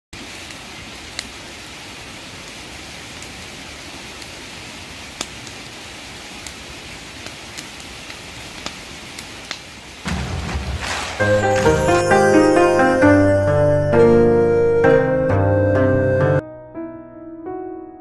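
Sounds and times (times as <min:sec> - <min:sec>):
burning wood crackling: 0:00.2 - 0:12.8
fire hissing: 0:00.4 - 0:14.3.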